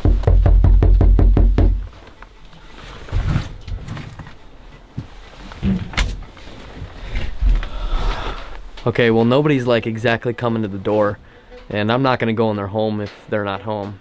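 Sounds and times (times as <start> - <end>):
fist knocking on door: 0.0 - 1.9.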